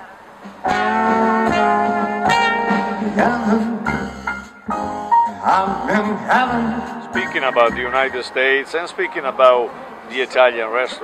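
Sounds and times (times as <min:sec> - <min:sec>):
walking bass line: 0:00.6 - 0:08.4
brass horn melody: 0:00.6 - 0:10.0.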